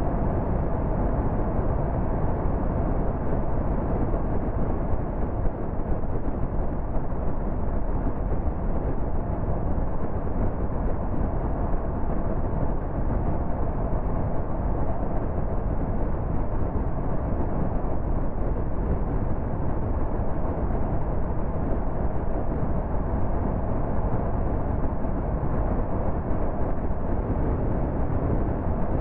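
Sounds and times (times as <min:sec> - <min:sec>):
tyre and wind noise: 0:00.0 - 0:29.0.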